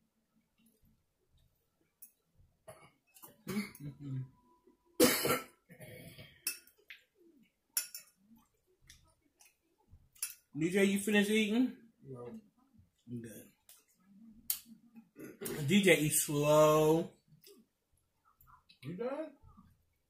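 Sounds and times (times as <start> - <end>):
person coughing: 3.5 - 4.2, 5.0 - 6.2.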